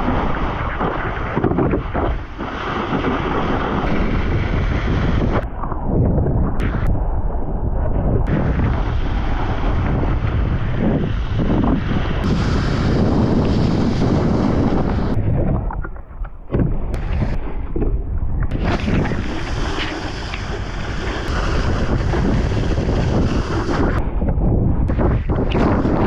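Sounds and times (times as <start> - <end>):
wind buffeting microphone: 0.0 - 26.0
wakeboard hissing across water: 12.0 - 15.2, 18.5 - 24.0.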